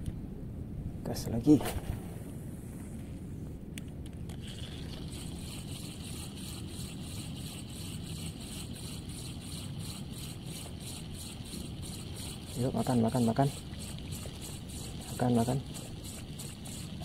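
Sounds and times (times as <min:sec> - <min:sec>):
fishing reel ticking: 0:04.3 - 0:17.0.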